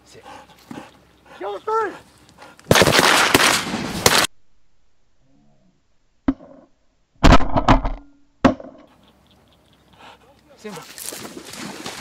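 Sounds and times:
shotgun shots: 0:02.7 - 0:04.3.

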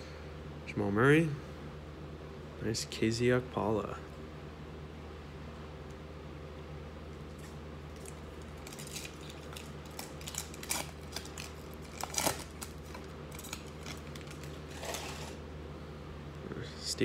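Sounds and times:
steady low hum: 0:00.0 - 0:17.0
foil wrapper crinkling and tearing: 0:07.4 - 0:15.4.

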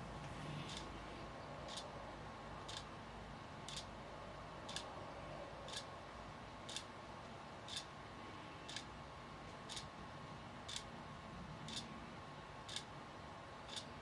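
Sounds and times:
faint steady hum: 0:00.0 - 0:14.0
clock ticking: 0:01.7 - 0:01.9, 0:02.6 - 0:02.9, 0:03.7 - 0:03.9, 0:04.7 - 0:04.9, 0:05.7 - 0:05.9, 0:06.6 - 0:06.9, 0:07.7 - 0:07.9, 0:08.7 - 0:08.9, 0:09.7 - 0:09.9, 0:10.7 - 0:10.9, 0:11.7 - 0:11.9, 0:12.7 - 0:12.9, 0:13.6 - 0:13.9.

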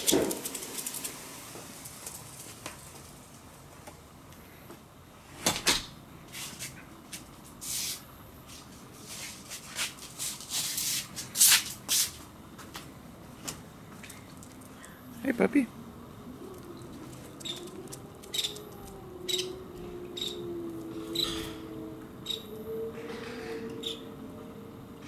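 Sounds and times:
scuffs and rustles on concrete: 0:00.0 - 0:03.5, 0:06.2 - 0:14.9.

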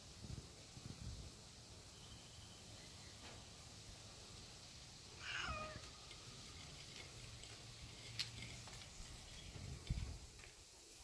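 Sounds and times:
cat meowing: 0:05.2 - 0:06.0.

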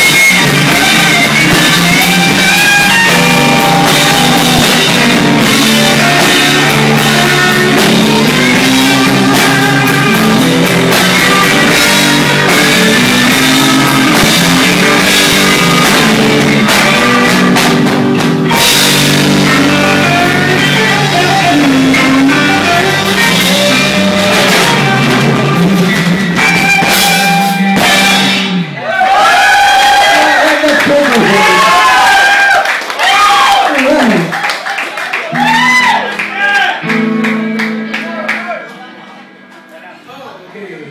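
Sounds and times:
electric guitar bending notes: 0:00.0 - 0:28.8, 0:35.3 - 0:40.0
drum kit: 0:00.0 - 0:29.9
bass guitar: 0:00.0 - 0:32.4, 0:35.2 - 0:40.2.

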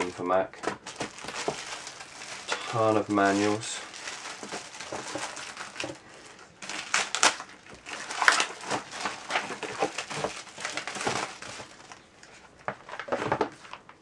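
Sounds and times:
plastic bag crinkling: 0:00.0 - 0:14.0.

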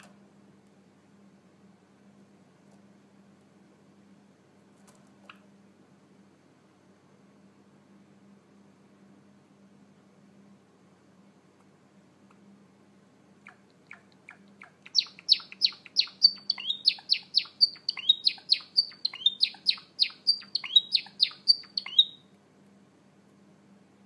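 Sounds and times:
sparrow chirping: 0:13.4 - 0:22.2.

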